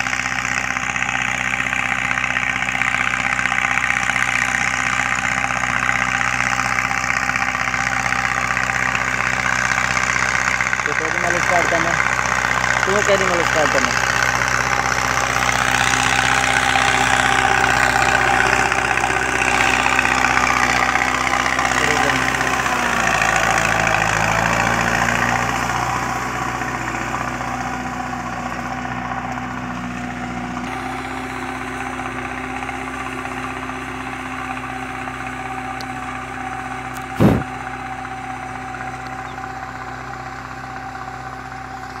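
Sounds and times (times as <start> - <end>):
tractor diesel engine running: 0.0 - 42.0
brief thump: 37.0 - 37.5.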